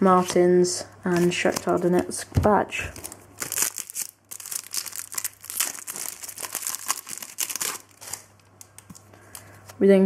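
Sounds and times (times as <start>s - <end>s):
foil wrapper crinkling: 2.9s - 9.5s.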